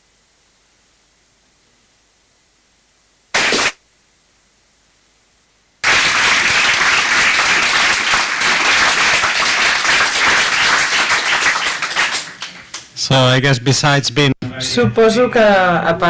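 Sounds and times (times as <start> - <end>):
audience applauding: 3.4 - 3.8, 5.8 - 12.9.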